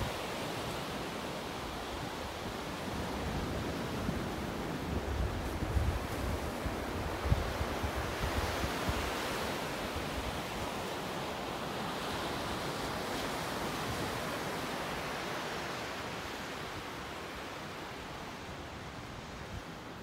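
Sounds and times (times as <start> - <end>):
small waves breaking on beach: 0.0 - 20.0
wind buffeting microphone: 3.0 - 9.2.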